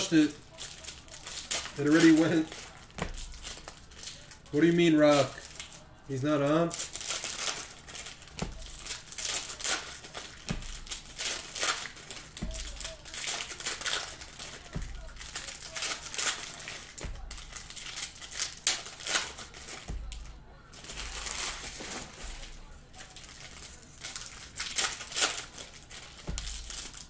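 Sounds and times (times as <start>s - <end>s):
foil wrappers crinkling and tearing: 0.0s - 27.0s.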